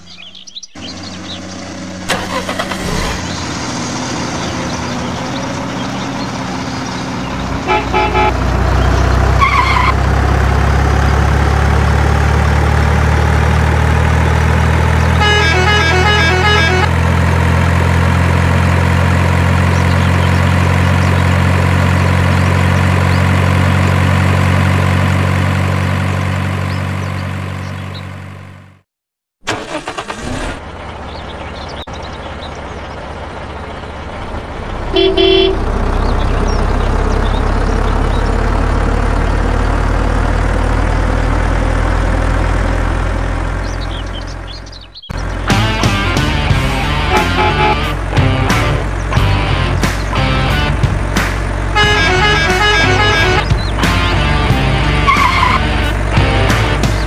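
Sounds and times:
heavy truck engine running: 0.0s - 28.8s, 29.5s - 57.0s
multi-tone horn toots: 7.6s - 8.5s, 15.0s - 17.0s, 34.9s - 35.7s, 46.8s - 48.6s, 51.7s - 56.0s.

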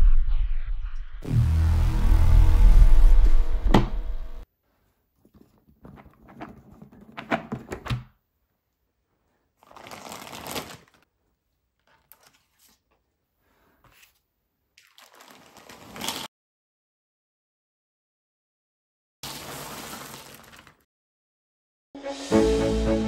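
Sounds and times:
plastic bag rustling: 9.6s - 11.0s, 14.8s - 16.3s, 19.2s - 20.8s
music: 22.0s - 23.0s.

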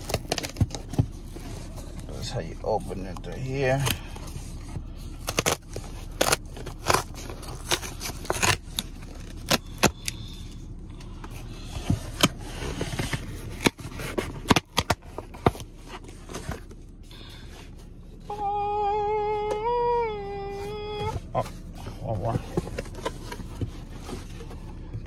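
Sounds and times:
cardboard box tearing: 0.0s - 1.0s, 5.2s - 10.1s
cardboard crackles and taps: 0.0s - 1.3s, 22.2s - 24.4s.

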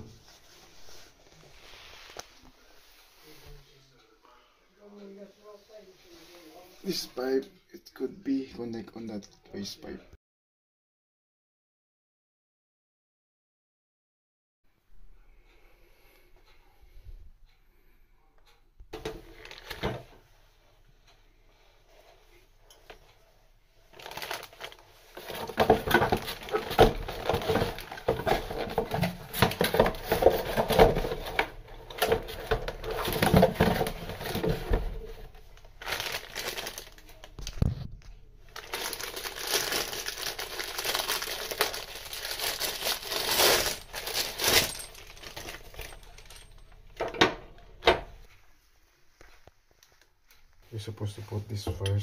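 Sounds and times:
packaging crinkling: 19.3s - 20.0s, 23.9s - 47.0s.

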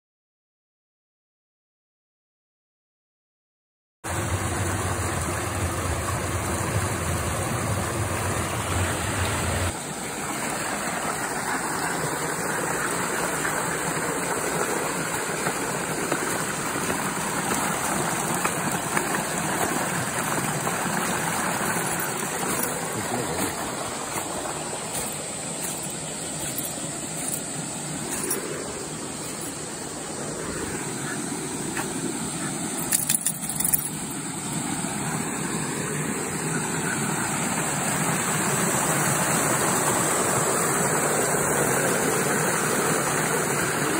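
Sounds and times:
water rushing through channel: 4.1s - 43.9s.

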